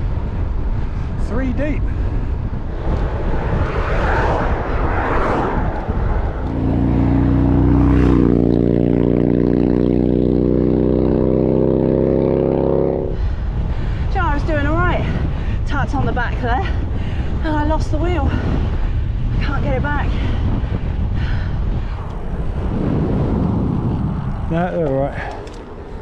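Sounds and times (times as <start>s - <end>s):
steady engine drone: 0.0s - 15.5s, 20.8s - 26.0s
rushing wind: 0.0s - 26.0s.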